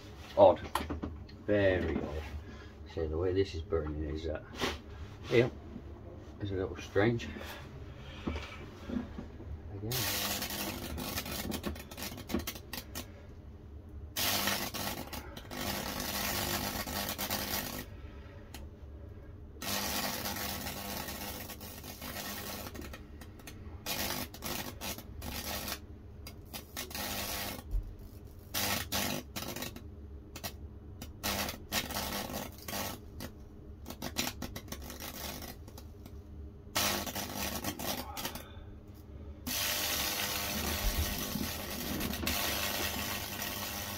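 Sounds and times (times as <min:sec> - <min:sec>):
steady electrical hum: 0:00.0 - 0:43.9
electric arc sizzling and crackling: 0:09.8 - 0:13.1, 0:14.1 - 0:17.9, 0:19.6 - 0:38.6, 0:39.4 - 0:43.9.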